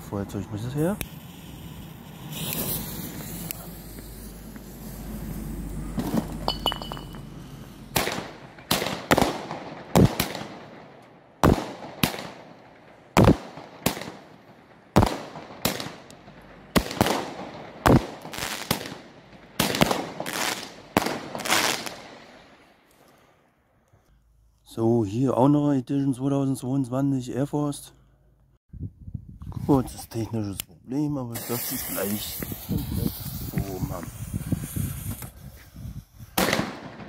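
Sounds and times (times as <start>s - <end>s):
low hissing: 0.0s - 8.0s, 31.3s - 36.0s
firework battery shots: 0.6s - 22.7s, 31.4s - 37.0s.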